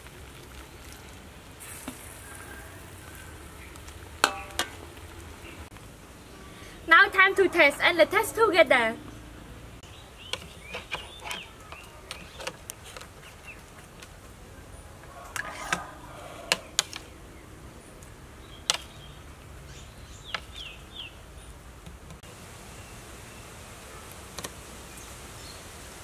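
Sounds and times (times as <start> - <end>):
small birds chirping: 8.7 - 21.6.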